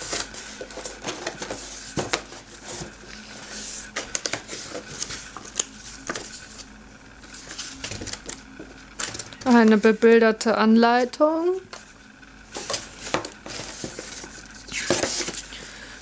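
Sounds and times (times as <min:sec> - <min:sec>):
paper and cardboard rustling: 0:00.0 - 0:06.7, 0:07.3 - 0:10.0, 0:12.5 - 0:15.6.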